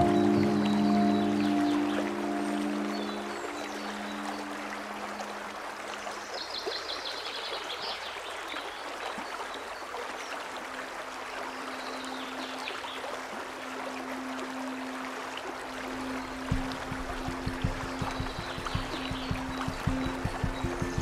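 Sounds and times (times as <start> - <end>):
bird chirping: 0.0 - 4.7, 16.0 - 21.0
stream rushing over rocks: 0.0 - 21.0.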